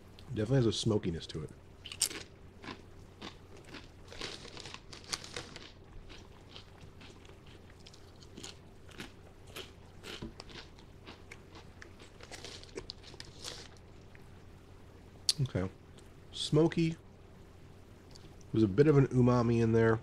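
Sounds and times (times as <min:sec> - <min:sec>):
person chewing potato chips: 0:01.8 - 0:14.2.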